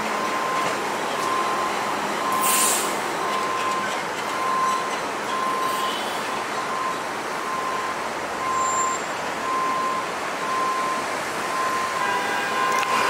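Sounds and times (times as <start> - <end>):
vehicle noise: 0.0 - 13.0
short hiss: 2.4 - 3.0.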